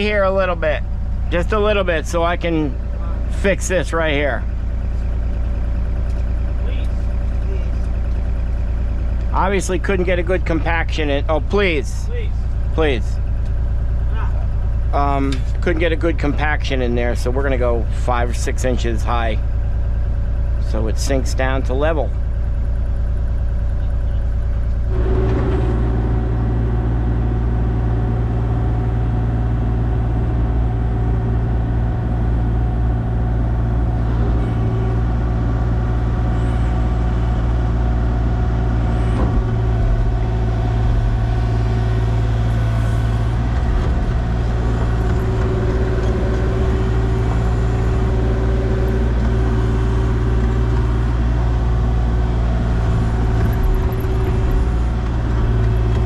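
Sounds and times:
heavy machine engine running: 0:00.0 - 0:56.0.

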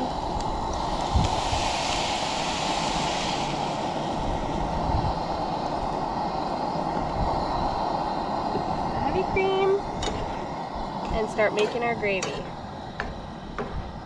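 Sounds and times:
cream sizzling in a skillet: 0:00.0 - 0:05.6
camp stove burner rumble: 0:00.0 - 0:14.0
wind on microphone: 0:00.0 - 0:14.0.

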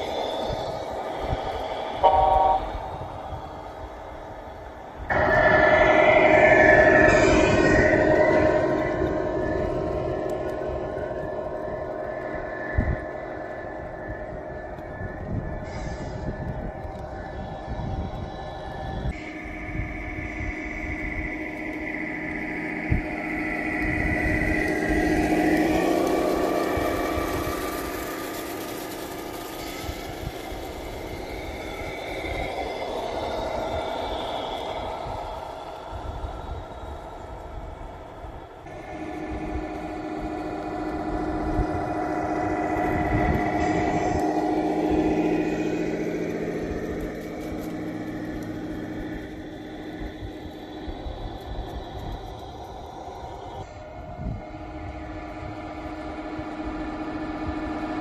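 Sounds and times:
toy trucks droning past: 0:00.0 - 0:58.0.

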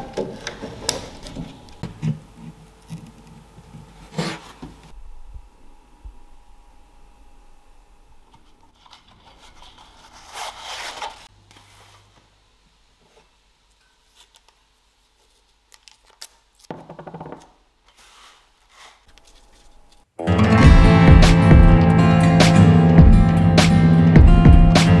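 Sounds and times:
hand rubbing and scraping on bench: 0:17.9 - 0:20.0.

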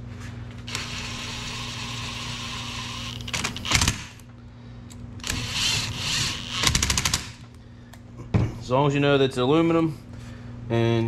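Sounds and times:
cordless power driver spinning: 0:00.7 - 0:04.2, 0:05.2 - 0:07.4.

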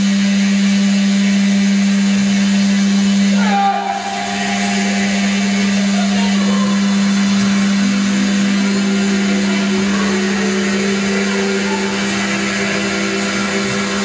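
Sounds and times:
low feedback tone: 0:02.2 - 0:14.0
higher feedback tones: 0:03.3 - 0:14.0.

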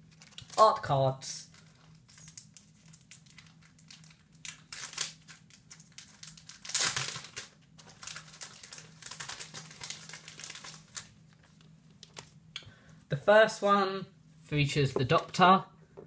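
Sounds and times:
packaging crinkling and rustling: 0:00.0 - 0:00.6, 0:01.4 - 0:12.4.

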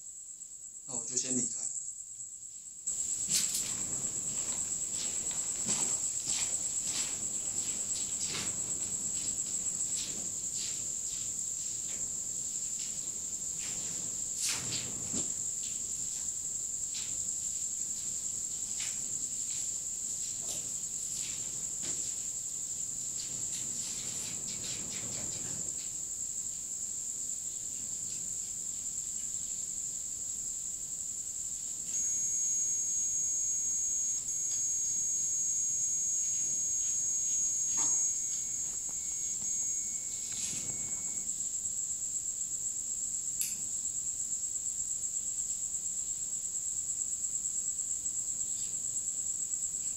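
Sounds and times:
crickets chirping: 0:00.0 - 0:49.9
electronic tone: 0:31.9 - 0:41.3.

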